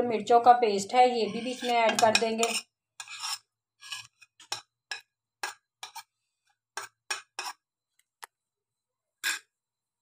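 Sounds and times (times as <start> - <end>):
metal spoon clinking on cookware: 1.3 - 6.1.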